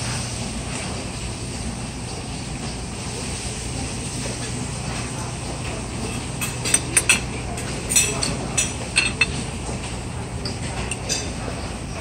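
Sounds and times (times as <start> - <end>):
hum of busy dining room: 0.0 - 12.0
clinks of plates and cutlery: 5.6 - 11.7.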